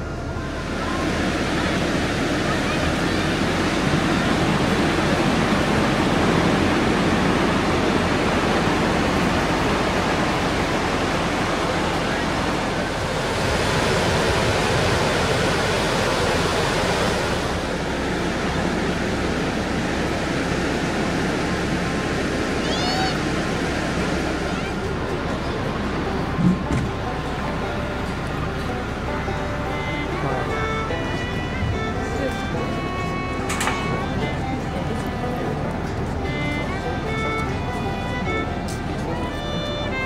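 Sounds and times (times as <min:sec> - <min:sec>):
surf washing onto beach: 0:00.0 - 0:31.1.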